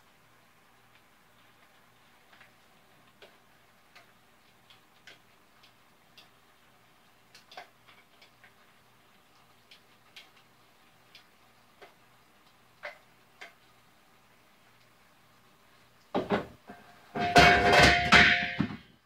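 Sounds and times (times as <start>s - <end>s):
faint ticks: 0.9s - 13.8s
cookware clattering: 17.1s - 18.9s.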